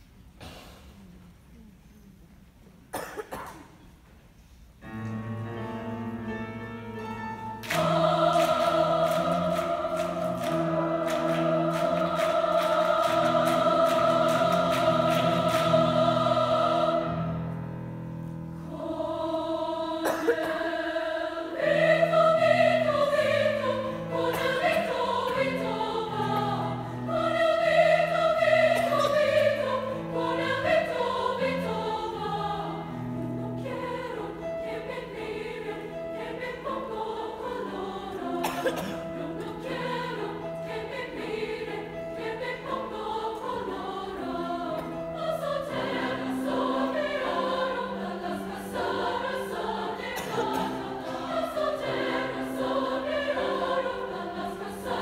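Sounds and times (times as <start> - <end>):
grand piano: 2.5 - 55.0
women's choir singing: 5.6 - 55.0.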